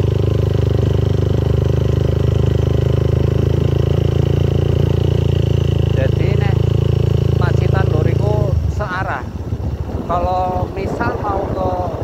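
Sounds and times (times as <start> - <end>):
motorcycle engine cruising: 0.0 - 12.0.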